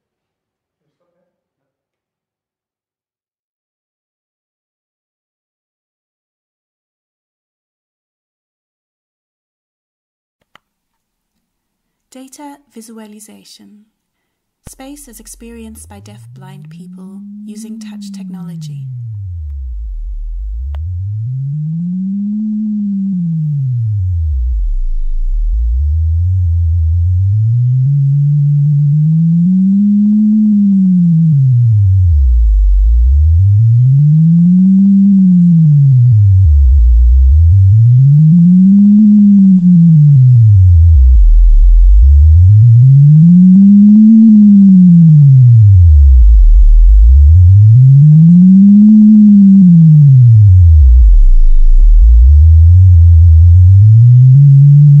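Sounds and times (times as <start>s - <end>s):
electronic tone gliding in pitch: 15.0s - 55.0s.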